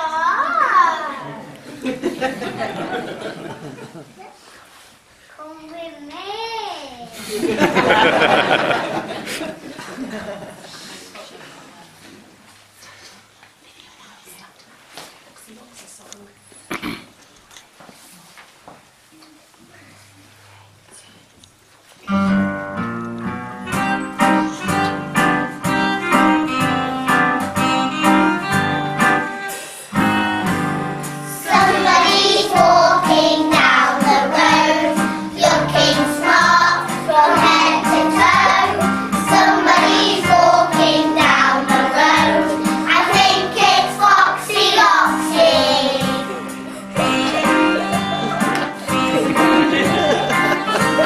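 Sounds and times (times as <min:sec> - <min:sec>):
young children singing: 0:00.0 - 0:03.5, 0:31.2 - 0:51.0
plucked guitar accompaniment: 0:22.1 - 0:51.0.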